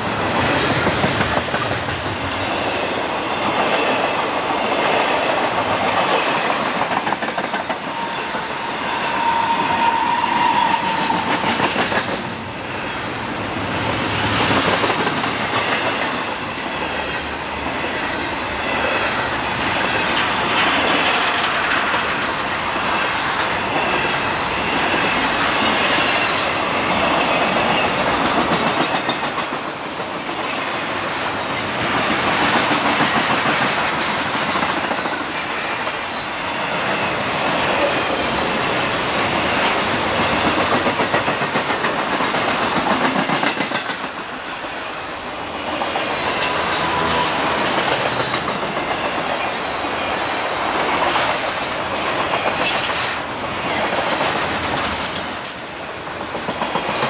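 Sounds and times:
freight train passing: 0.0 - 57.0
steel wheels clattering on rails: 0.2 - 8.5, 13.8 - 30.7, 36.9 - 44.8, 45.7 - 57.0
high wheel squeals: 7.8 - 11.2.

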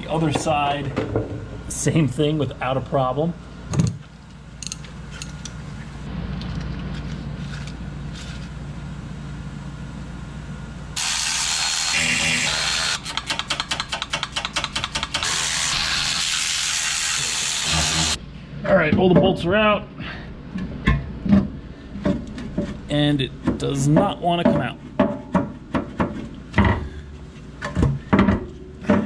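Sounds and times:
electric ratchet whirring: 11.0 - 18.2
ratchet rapid clicking: 12.0 - 17.2.

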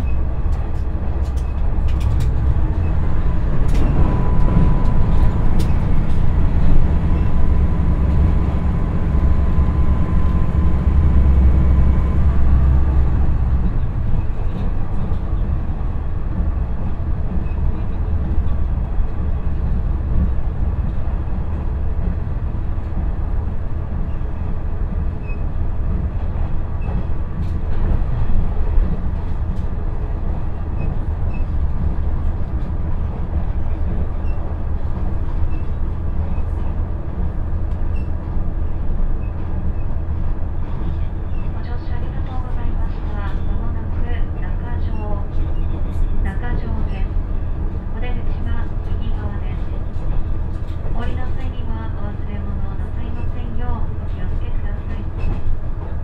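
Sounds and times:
diesel engine droning: 0.0 - 23.6
train wheels rumbling on rail: 0.0 - 56.0.

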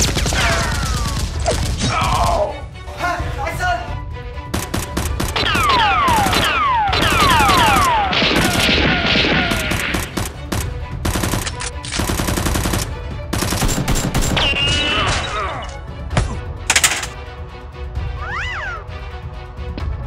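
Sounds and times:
background music: 0.0 - 20.0
automatic gunfire bursts: 11.0 - 14.4.

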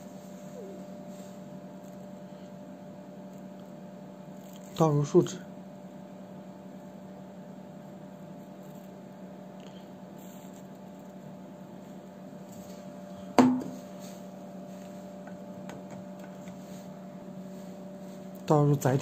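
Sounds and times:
electrical hum: 0.0 - 19.0
sharp knock: 13.4 - 13.8.

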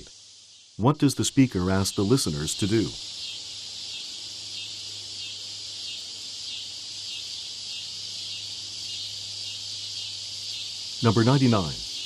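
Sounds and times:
high insect-like hiss: 0.0 - 12.0.

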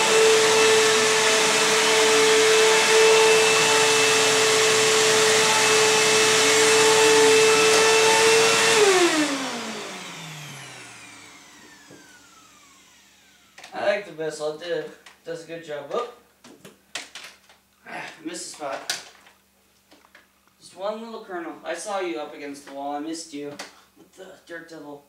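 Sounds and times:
vacuum motor spinning down: 0.0 - 13.6
vacuum cleaner running: 0.0 - 13.7.

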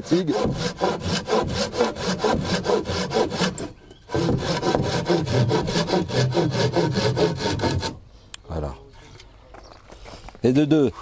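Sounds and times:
hand saw cutting wood: 0.0 - 8.0.

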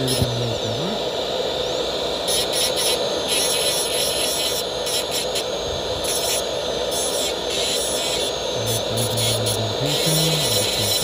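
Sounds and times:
dental handpiece grinding porcelain: 2.3 - 5.5, 6.1 - 11.0.

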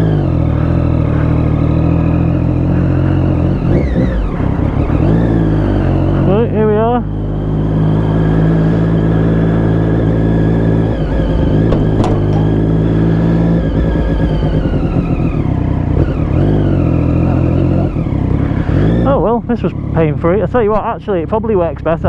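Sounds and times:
motorcycle engine at low revs: 0.0 - 22.0
sharp knock: 11.5 - 12.8.

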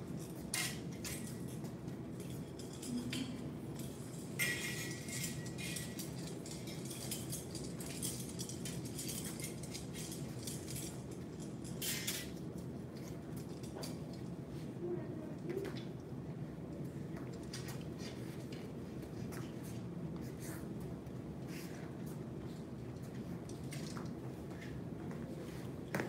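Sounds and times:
metal knives clinking: 0.5 - 12.4.

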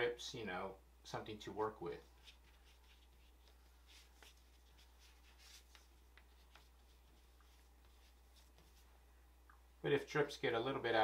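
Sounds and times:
watercolor brush strokes on paper: 1.8 - 9.0.

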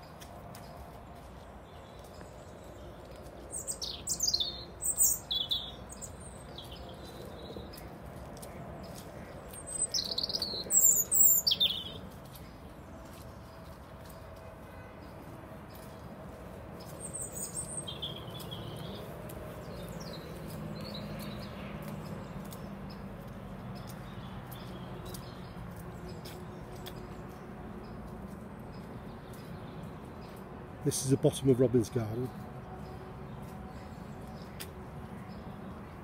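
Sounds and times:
birds chirping: 0.0 - 36.0
outdoor background hum: 0.0 - 36.0.

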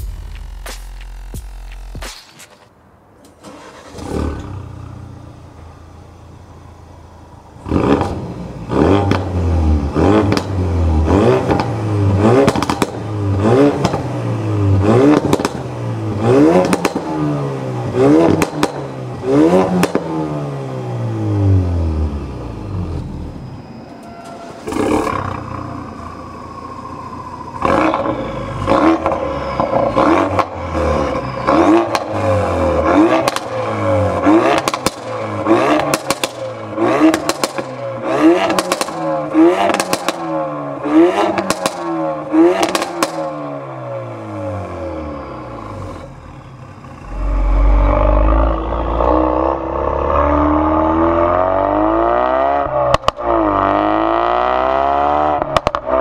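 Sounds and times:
sharp sound: 0.0 - 2.8, 46.7 - 50.2
car engine idling and revving: 0.0 - 56.0.

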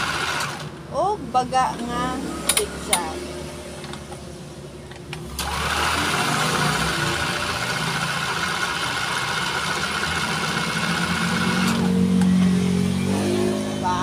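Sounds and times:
electric sewing machine running: 0.0 - 0.7, 5.3 - 13.5.

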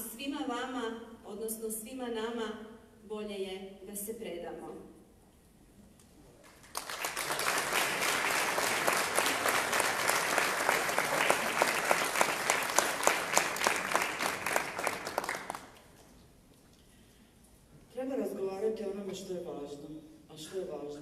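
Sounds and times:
audience applauding: 6.4 - 15.8
sharp claps close to microphone: 6.4 - 15.9.

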